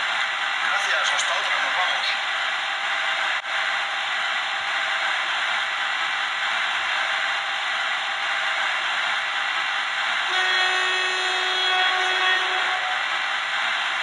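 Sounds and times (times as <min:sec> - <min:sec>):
locomotive horn: 0:10.2 - 0:13.2.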